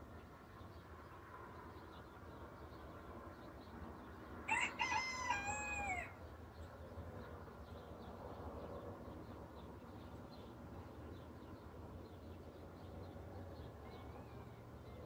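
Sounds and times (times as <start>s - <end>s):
rooster crowing: 4.5s - 6.2s.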